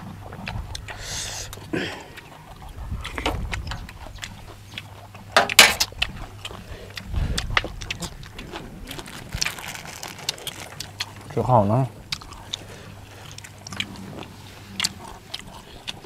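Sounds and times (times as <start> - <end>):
chewing and slurping: 0.0 - 16.0
plastic bag rustling: 8.5 - 11.4.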